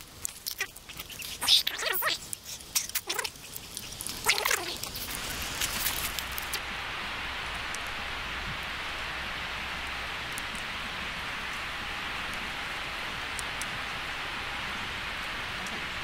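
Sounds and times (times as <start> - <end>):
burning wood popping: 0.0 - 6.6
campfire hissing: 0.0 - 16.0.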